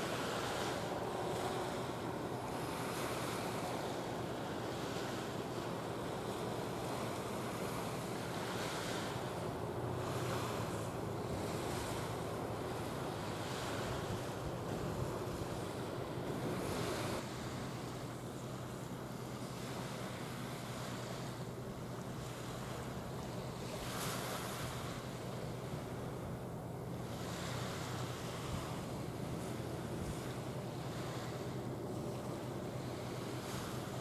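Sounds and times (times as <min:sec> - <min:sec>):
wind on microphone: 0:00.0 - 0:17.6
low steady hum: 0:00.0 - 0:34.0.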